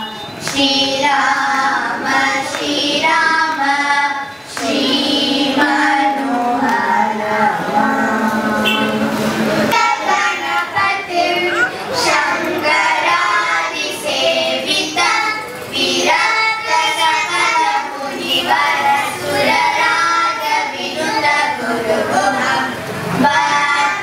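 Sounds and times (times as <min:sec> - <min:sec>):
girls singing together: 0:00.0 - 0:24.0.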